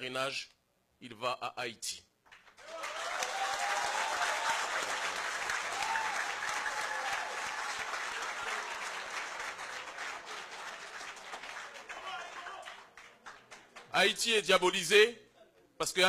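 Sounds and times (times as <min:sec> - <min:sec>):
audience applauding: 0:02.3 - 0:13.9
cheering cries: 0:02.6 - 0:10.7, 0:11.7 - 0:12.8.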